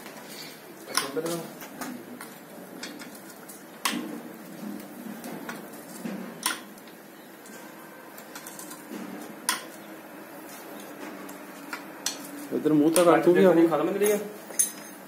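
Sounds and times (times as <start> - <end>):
wrench clinking on engine bolts: 14.0 - 15.0.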